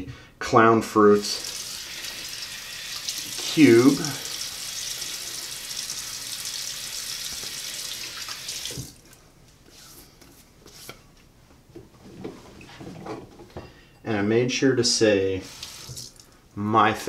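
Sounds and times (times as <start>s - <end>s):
sink tap running: 1.3s - 9.1s, 15.4s - 16.2s.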